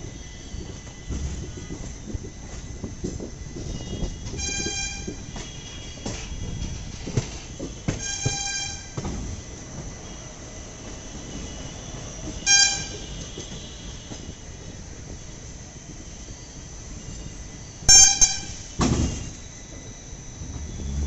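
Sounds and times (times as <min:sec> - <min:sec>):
train wheels rumbling on track: 0:00.0 - 0:21.0
train horn blasts: 0:03.7 - 0:06.3, 0:07.9 - 0:09.0, 0:12.4 - 0:14.3, 0:17.9 - 0:18.7.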